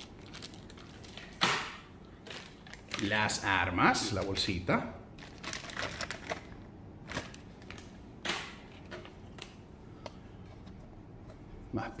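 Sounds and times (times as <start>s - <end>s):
plastic bag rustling: 0.0s - 1.4s, 2.2s - 4.6s, 5.2s - 8.0s.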